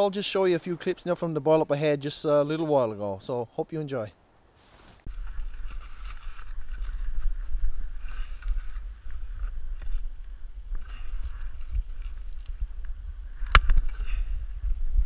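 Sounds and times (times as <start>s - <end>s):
wind rumble on microphone: 5.1s - 15.0s.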